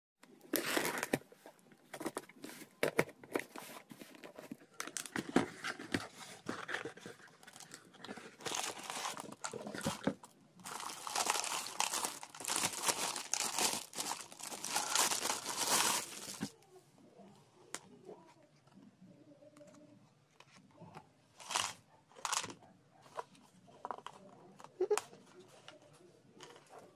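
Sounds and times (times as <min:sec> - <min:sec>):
plastic wrapper crinkling: 0:06.6 - 0:16.5, 0:21.4 - 0:22.5.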